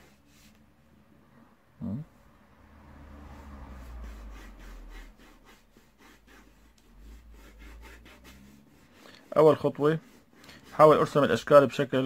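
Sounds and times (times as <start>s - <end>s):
pencil scratching on paper: 0.0s - 0.6s, 3.3s - 12.0s
hand rubbing over paper: 3.7s - 11.8s.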